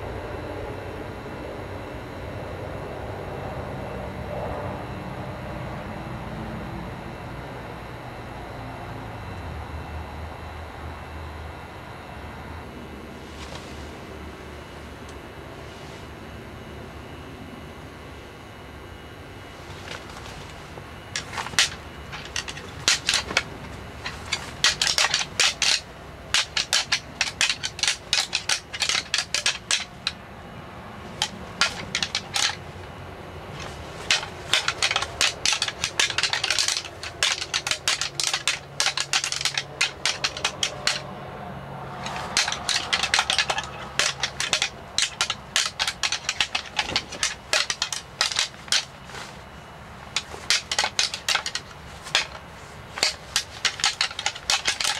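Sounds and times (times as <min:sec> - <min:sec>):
antlers rattling together: 0:19.6 - 0:30.2, 0:31.0 - 0:32.9, 0:33.5 - 0:41.0, 0:42.0 - 0:54.9.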